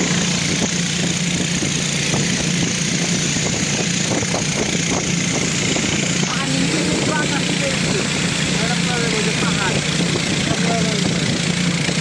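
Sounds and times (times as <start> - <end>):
motorboat engine running: 0.0 - 12.0.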